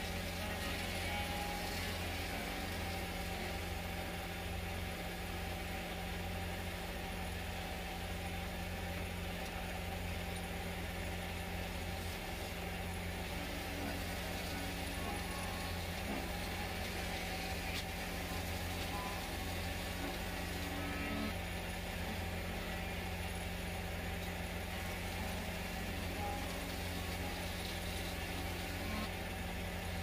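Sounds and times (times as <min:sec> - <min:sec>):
lathe motor humming: 0:10.8 - 0:30.0.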